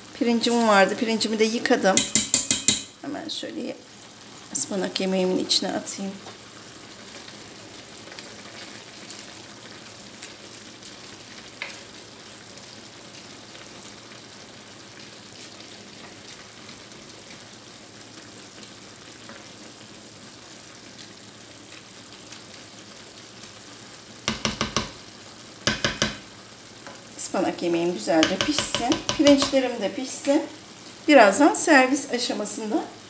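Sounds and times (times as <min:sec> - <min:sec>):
food sizzling in pan: 0:00.0 - 0:33.0
spoon scraping pan: 0:01.9 - 0:03.0, 0:28.1 - 0:29.7.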